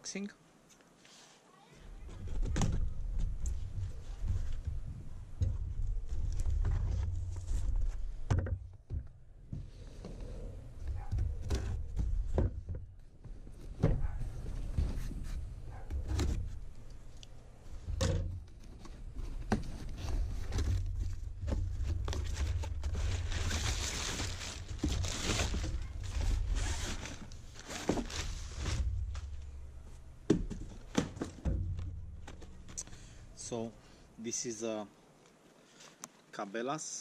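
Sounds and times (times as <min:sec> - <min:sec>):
cardboard tearing and rustling: 0:18.7 - 0:29.4
knocks: 0:28.7 - 0:32.9.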